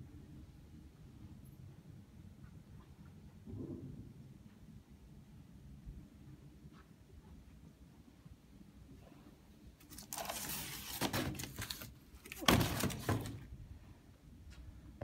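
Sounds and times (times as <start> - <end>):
cardboard boxes rustling and scraping: 9.9 - 13.5.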